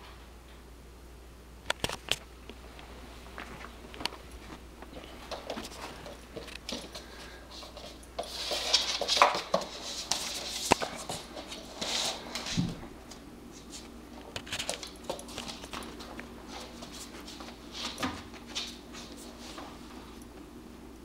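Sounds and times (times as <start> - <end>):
puppy claws clicking on wooden floor: 7.6 - 11.6, 14.2 - 16.3.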